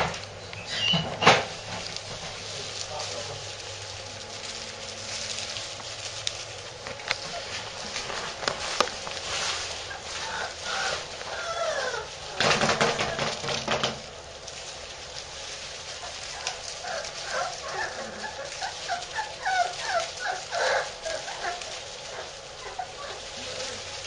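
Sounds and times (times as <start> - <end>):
puppies whimpering and squeaking: 0.0 - 24.0
rustling: 0.0 - 24.0.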